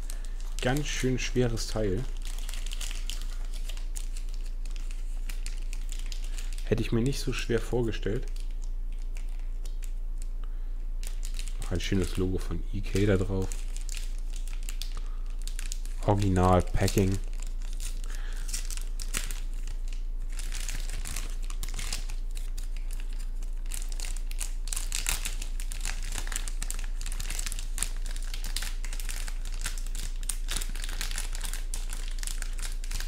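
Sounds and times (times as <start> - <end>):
plastic bag crinkling: 0.0 - 10.0, 11.0 - 33.0.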